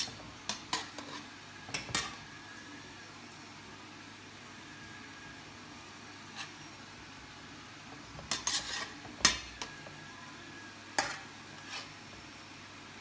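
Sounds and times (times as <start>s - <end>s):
metal spoon scraping pot: 0.0s - 2.2s, 8.1s - 9.8s, 11.0s - 12.0s.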